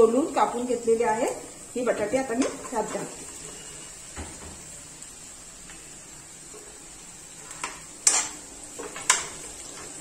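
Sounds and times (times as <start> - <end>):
spoon knocking and scraping pan: 2.3 - 3.2, 7.4 - 10.0.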